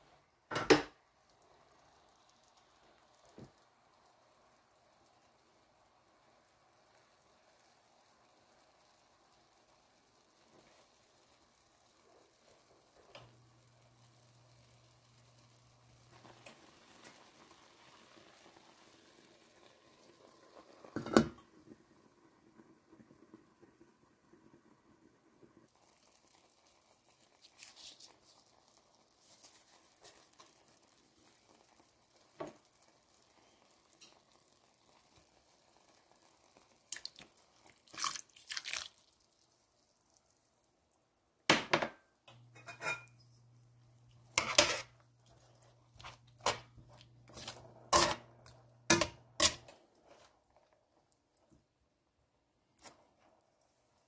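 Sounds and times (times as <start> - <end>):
sauce simmering: 0.0 - 54.0
liquid pouring: 25.7 - 41.0
metal tongs clinking on pan: 42.5 - 43.2, 47.9 - 49.7.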